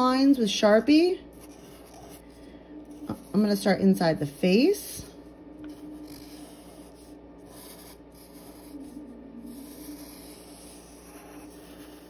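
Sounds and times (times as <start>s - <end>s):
marker rubbing on paper: 6.0s - 12.0s.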